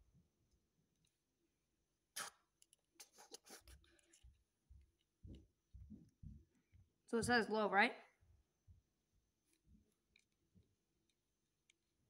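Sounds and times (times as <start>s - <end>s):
small clicks and rustles: 2.5s - 6.9s, 9.4s - 11.9s.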